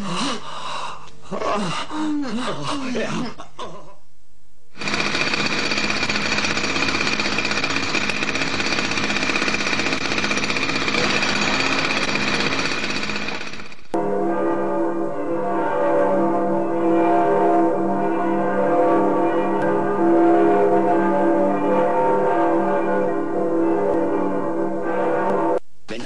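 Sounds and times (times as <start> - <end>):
mechanical hammering rattle: 4.8 - 14.0.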